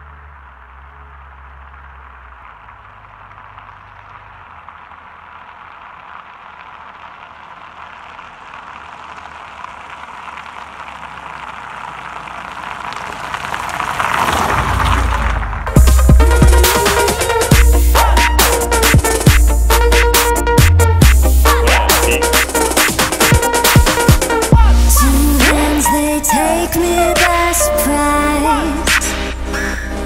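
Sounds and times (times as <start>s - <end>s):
car passing over on asphalt: 0.0s - 21.6s.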